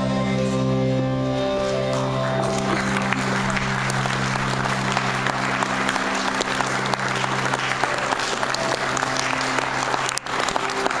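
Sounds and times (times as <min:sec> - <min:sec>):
audience applauding: 0:02.2 - 0:11.0.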